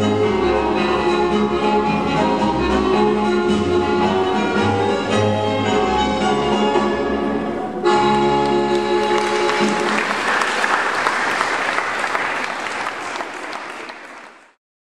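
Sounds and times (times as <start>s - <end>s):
jig dance music: 0.0s - 7.2s, 7.8s - 10.6s
audience applause: 8.4s - 14.6s.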